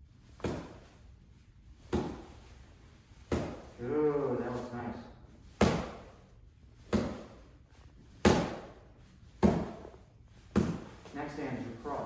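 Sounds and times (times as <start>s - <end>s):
gloved punches slapping mitts: 0.4s - 0.8s, 1.9s - 2.4s, 3.3s - 3.8s, 5.6s - 6.2s, 6.8s - 7.4s, 8.2s - 11.3s.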